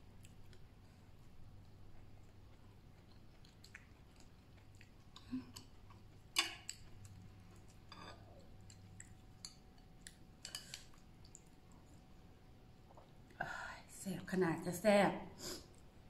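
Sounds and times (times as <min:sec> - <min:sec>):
faint low hum: 0:00.0 - 0:16.0
person chewing food: 0:00.1 - 0:13.4.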